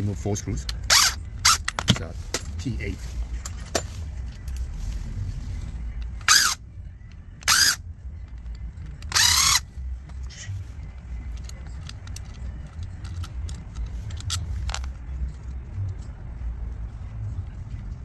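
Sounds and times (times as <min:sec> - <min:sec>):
electric screwdriver spinning: 0:06.2 - 0:06.6, 0:07.4 - 0:07.8, 0:09.1 - 0:09.6
small parts clicking and tapping: 0:11.0 - 0:16.0.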